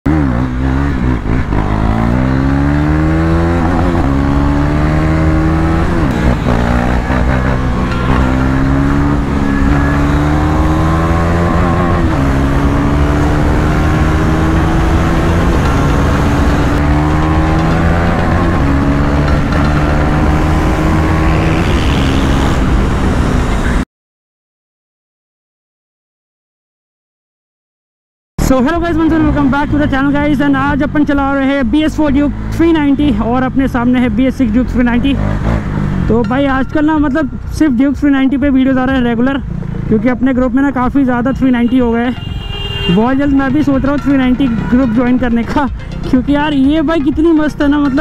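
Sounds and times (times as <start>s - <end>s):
motorcycle engine accelerating: 0.1s - 23.8s, 28.4s - 41.3s.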